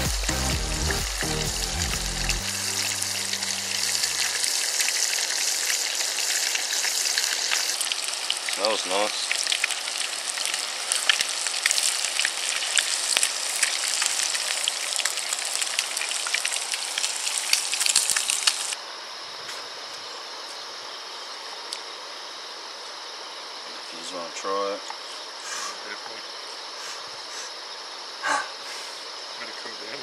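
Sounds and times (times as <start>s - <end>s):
fish frying in hot oil: 0.2s - 18.8s
insects trilling: 0.7s - 30.0s.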